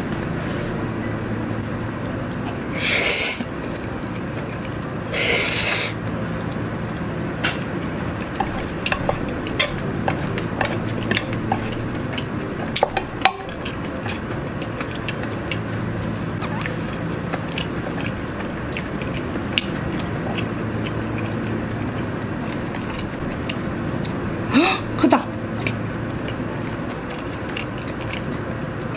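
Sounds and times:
chewing: 0:03.4 - 0:24.2, 0:25.5 - 0:28.9
noodle slurping: 0:05.1 - 0:06.0.

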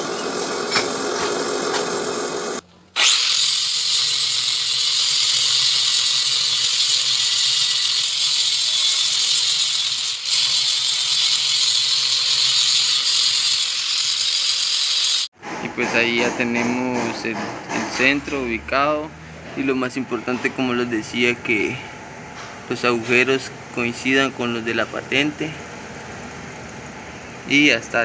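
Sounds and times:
angle grinder grinding steel: 0:00.0 - 0:15.3
drill press boring steel: 0:00.0 - 0:15.3.

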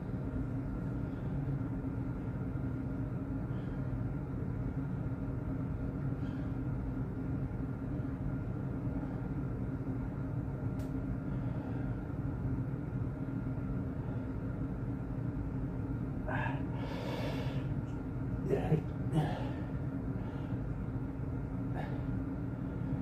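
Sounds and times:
low mechanical hum: 0:00.0 - 0:23.0.

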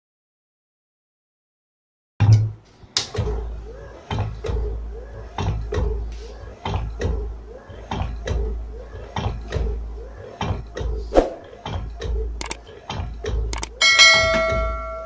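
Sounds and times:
low motor hum: 0:03.2 - 0:13.8.

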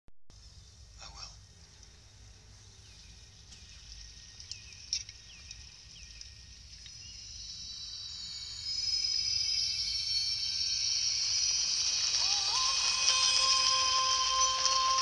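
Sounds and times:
night insects chirping: 0:00.4 - 0:15.0
short falling chirps: 0:03.7 - 0:15.0.

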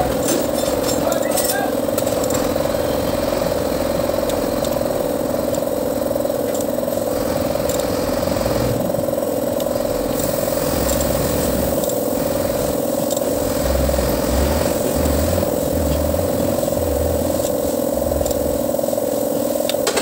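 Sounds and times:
truck engine idling: 0:09.2 - 0:19.4.

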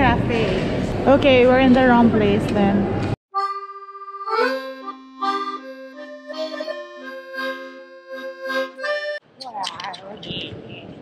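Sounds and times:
accordion melody: 0:03.3 - 0:09.2.

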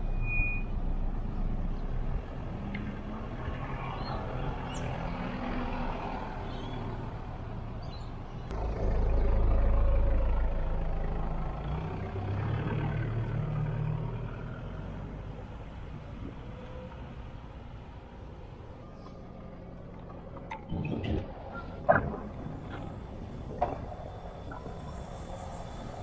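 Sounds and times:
diesel van engine rumbling: 0:06.9 - 0:26.0.

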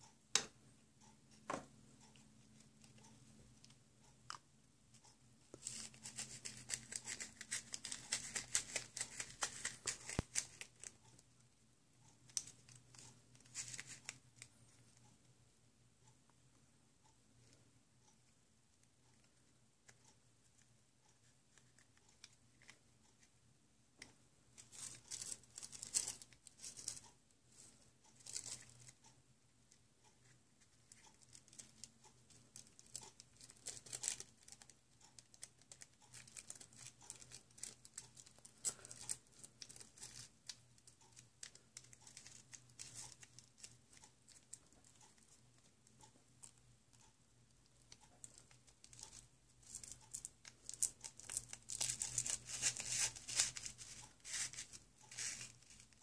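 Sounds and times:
small clicks and taps: 0:00.0 - 0:00.6.

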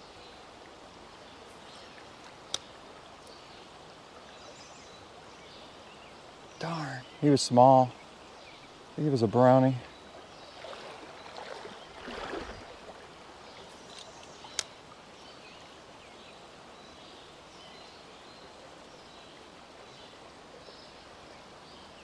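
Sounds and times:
creek running over rocks: 0:00.0 - 0:22.0
water splash: 0:10.6 - 0:13.1.

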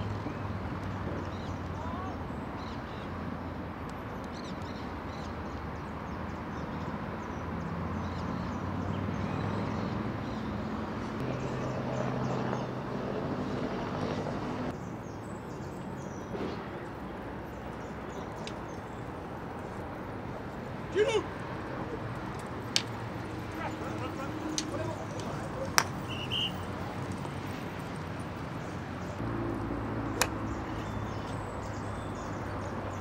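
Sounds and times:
short high-pitched calls: 0:26.1 - 0:26.6.

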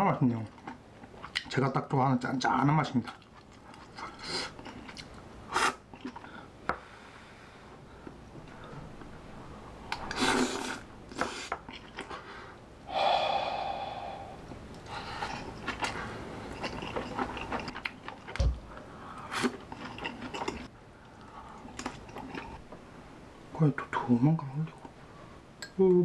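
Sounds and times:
chewing: 0:00.4 - 0:01.6, 0:03.0 - 0:05.2, 0:05.9 - 0:06.3, 0:09.9 - 0:12.2, 0:14.7 - 0:18.4, 0:19.2 - 0:22.6
person huffing breaths: 0:12.3 - 0:15.4
breathy voiced exhale: 0:12.9 - 0:15.3.

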